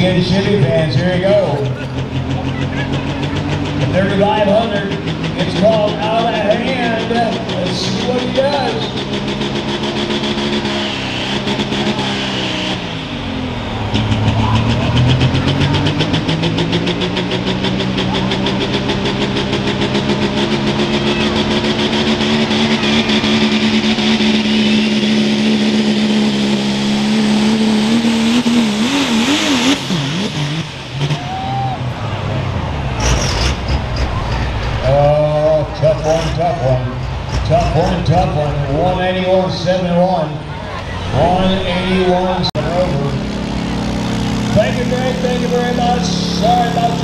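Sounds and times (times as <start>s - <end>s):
diesel pickup engine under load: 0.0s - 47.0s.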